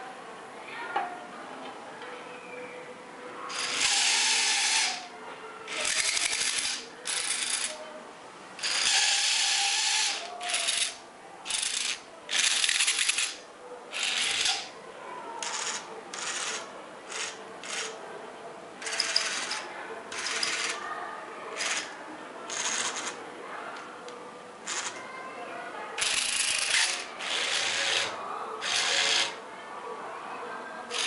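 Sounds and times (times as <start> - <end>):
toy vehicle motors whirring: 3.5 - 5.1, 5.7 - 7.8, 8.6 - 14.7, 15.4 - 18.0, 18.8 - 20.8, 21.6 - 23.2, 24.7 - 25.0, 26.0 - 29.4.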